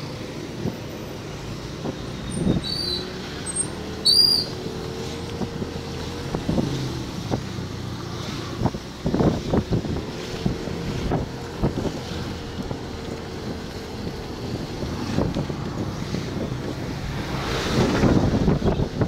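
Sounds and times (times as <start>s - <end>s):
road noise: 0.0s - 19.0s
wind buffeting microphone: 3.8s - 19.0s.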